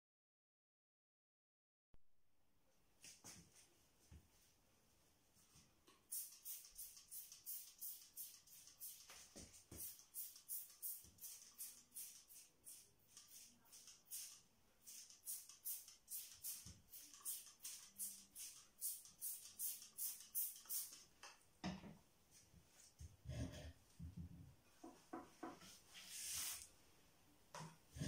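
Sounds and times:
spray bottle hissing: 6.1 - 21.1, 26.1 - 26.7.

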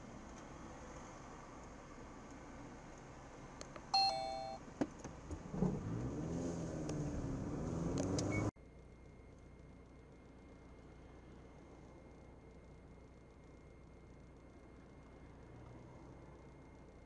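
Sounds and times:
two-tone car horn beep: 4.0 - 4.6
car engine accelerating: 5.3 - 8.5.

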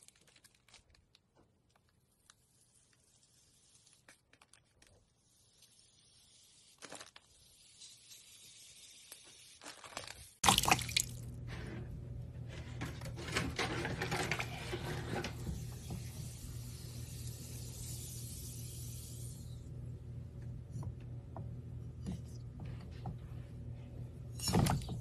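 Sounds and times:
plastic bags squishing: 0.0 - 1.8
water sloshing in a bucket: 10.4 - 11.3
low steady hum: 10.4 - 25.0.

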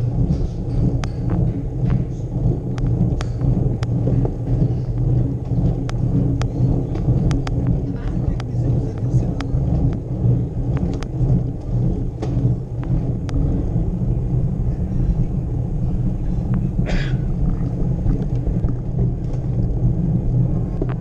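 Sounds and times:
rattling clicks: 0.0 - 13.6
bicycle rumbling over cobblestones: 0.0 - 21.0.

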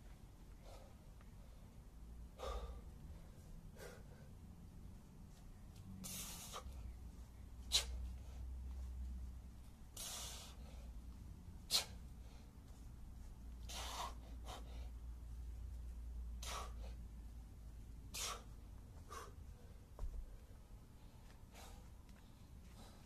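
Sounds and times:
man's hissing exhalations: 6.0 - 6.8, 10.0 - 10.8, 11.7 - 12.0, 13.7 - 14.8, 18.1 - 19.4.

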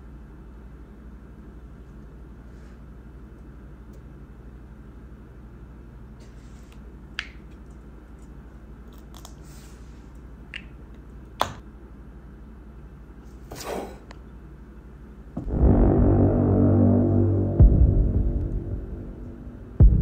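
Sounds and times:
faint room hum: 0.0 - 20.0.

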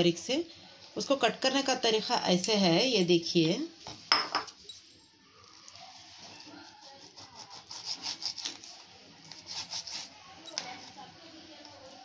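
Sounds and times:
knife slicing meat on a board: 6.7 - 10.1.

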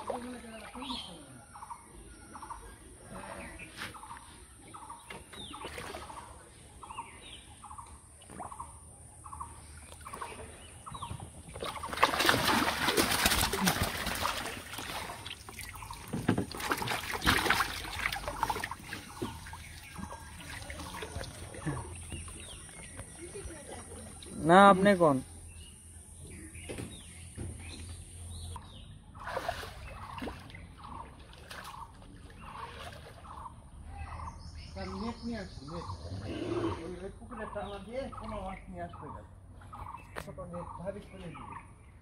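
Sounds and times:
water splashing and sloshing: 0.0 - 1.4, 3.0 - 6.9, 9.4 - 24.3, 29.0 - 33.8.

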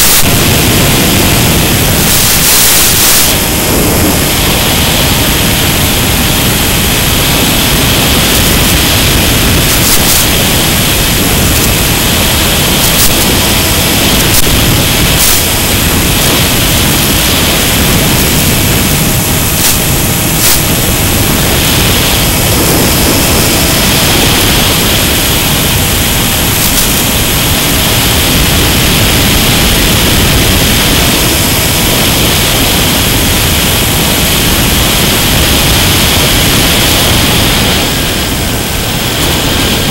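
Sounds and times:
electric propeller noise: 0.0 - 39.9
wind rushing: 0.0 - 39.9
brief crackles: 9.7 - 10.3.

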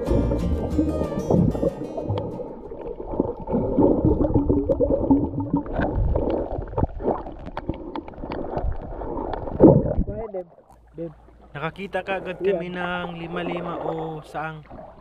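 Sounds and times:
wavering low tones: 0.0 - 5.7
underwater gurgling and bubbles: 0.7 - 15.0.

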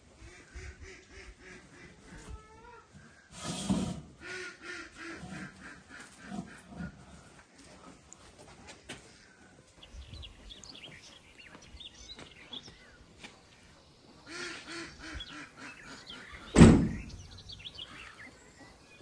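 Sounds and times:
duck quacking: 4.2 - 6.6, 14.2 - 16.7
small birds chirping: 9.7 - 19.0
loud thump: 16.5 - 17.2.

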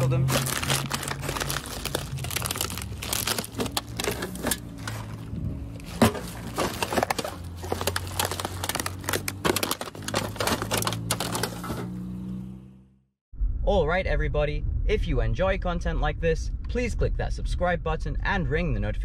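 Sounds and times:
plastic bags crinkling: 0.0 - 11.8.

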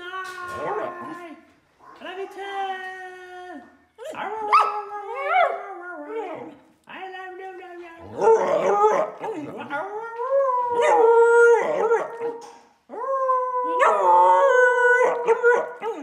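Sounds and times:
dog howling: 8.1 - 16.0.

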